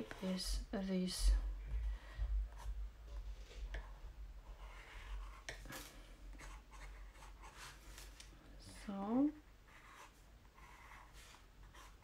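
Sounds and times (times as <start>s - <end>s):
low steady hum: 0.0s - 12.0s
pen nib scratching on paper: 3.8s - 5.8s.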